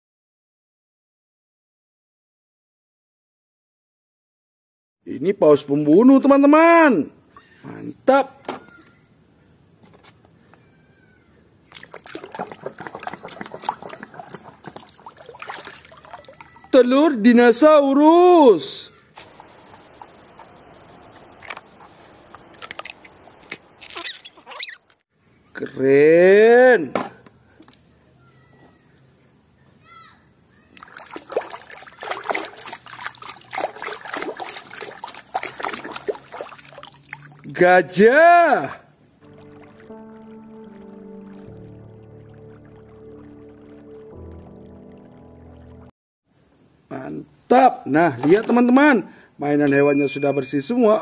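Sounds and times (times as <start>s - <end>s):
hands splashing in a tub of water: 11.7s - 16.8s, 30.7s - 37.5s, 48.0s - 48.8s.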